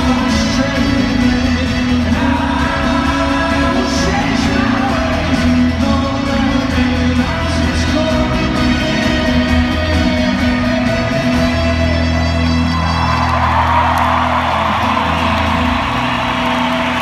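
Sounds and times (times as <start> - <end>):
live folk-rock band playing: 0.0 - 17.0
crowd cheering: 10.5 - 17.0.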